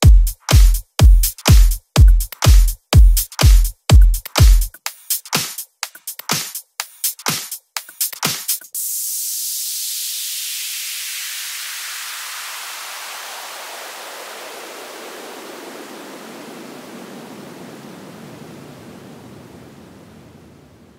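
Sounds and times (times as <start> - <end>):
synthesized noise sweep: 8.8 - 17.5.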